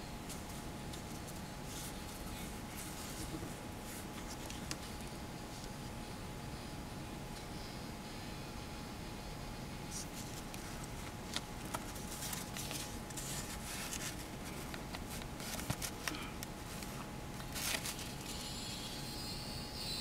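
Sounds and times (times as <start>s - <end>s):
paper rustling: 10.0s - 18.4s.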